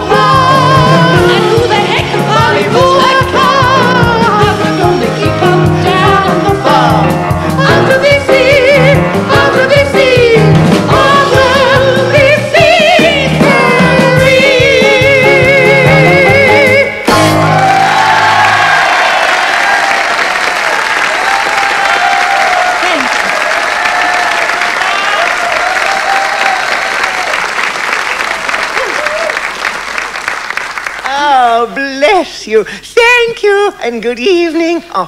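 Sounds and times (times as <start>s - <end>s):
person singing operatic style: 0.0s - 18.6s
piano accompaniment: 0.0s - 19.2s
audience applause: 17.5s - 31.2s.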